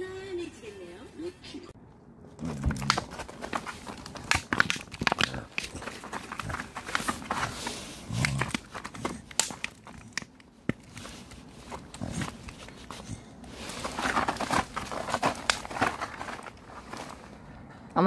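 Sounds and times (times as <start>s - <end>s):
low grunt: 2.3s - 3.1s
crinkling and clicking: 2.4s - 17.4s.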